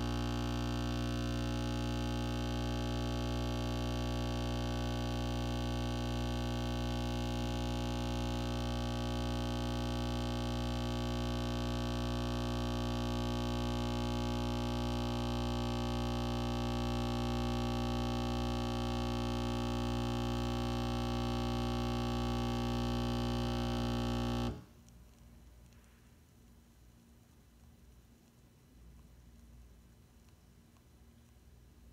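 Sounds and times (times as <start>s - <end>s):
coffee machine pump buzzing: 0.0s - 24.7s.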